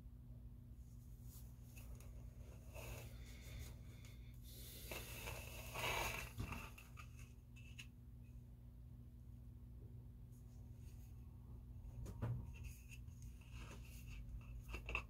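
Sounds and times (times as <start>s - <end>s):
plastic rubbing and scraping: 4.9s - 7.9s, 12.5s - 15.0s.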